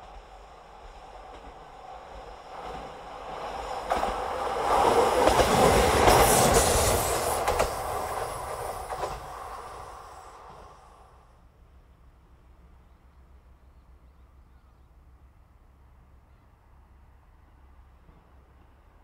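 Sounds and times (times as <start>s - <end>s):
wheels clacking over rail joints: 0.0s - 10.7s
diesel railcar passing: 0.0s - 14.4s.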